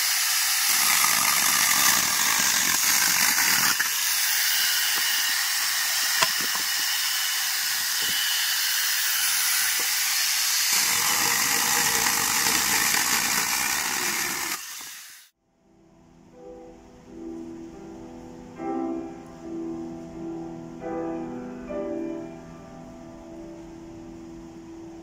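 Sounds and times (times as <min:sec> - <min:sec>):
chainsaw attachment cutting wood: 0:00.0 - 0:15.3
faint piano music: 0:15.4 - 0:25.0.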